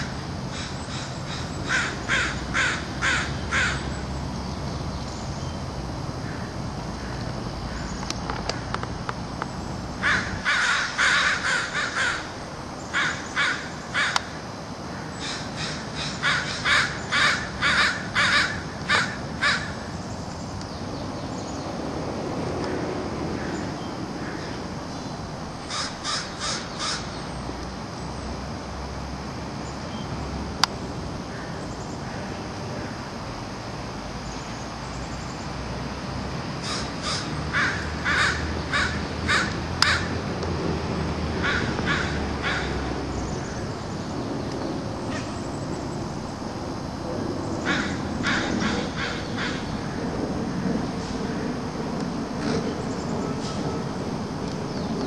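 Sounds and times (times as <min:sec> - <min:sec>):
crows cawing: 0:00.0 - 0:04.0, 0:06.2 - 0:08.8, 0:10.0 - 0:19.9, 0:23.3 - 0:24.6, 0:25.7 - 0:27.2, 0:31.3 - 0:33.0, 0:36.6 - 0:40.3, 0:41.4 - 0:43.6, 0:47.6 - 0:50.0.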